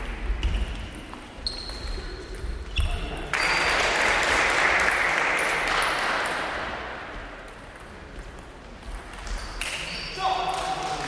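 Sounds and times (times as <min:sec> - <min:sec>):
spectators clapping: 0:03.3 - 0:06.6.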